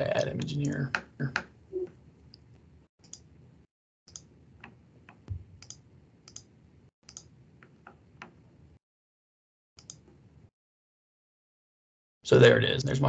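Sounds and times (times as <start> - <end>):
computer mouse clicks: 2.3 - 3.3, 4.1 - 6.5, 7.1 - 8.4, 9.8 - 10.1.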